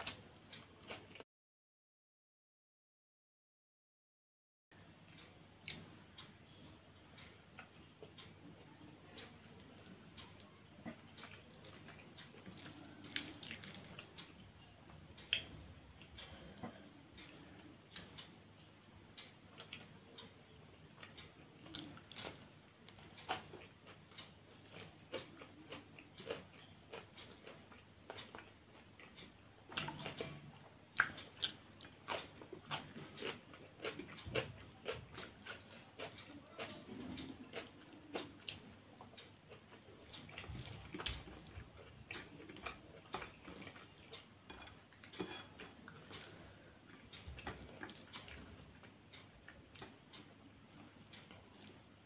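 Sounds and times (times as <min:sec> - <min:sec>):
person chewing food: 0:00.0 - 0:01.2, 0:05.1 - 0:06.7, 0:07.6 - 0:20.3, 0:21.0 - 0:52.0.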